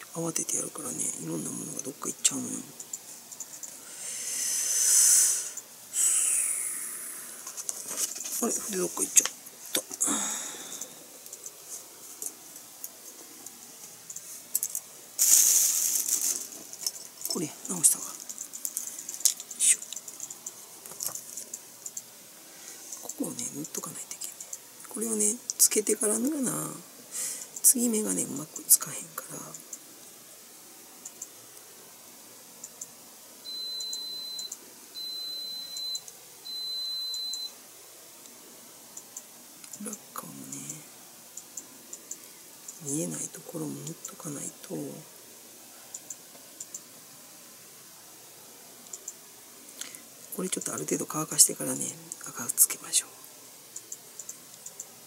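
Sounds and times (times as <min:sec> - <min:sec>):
loud hissing rustle: 0:03.0 - 0:23.2
small tools clicking on a desk: 0:18.1 - 0:22.0
long electronic beeps: 0:33.5 - 0:37.6.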